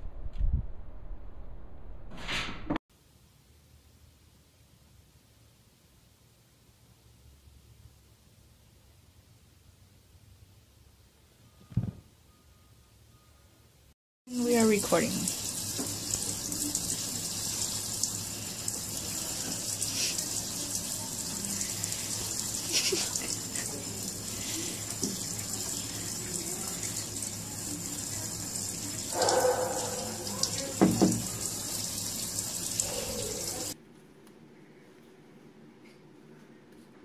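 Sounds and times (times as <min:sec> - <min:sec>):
faucet water splashing into sink: 0:14.3 - 0:33.8.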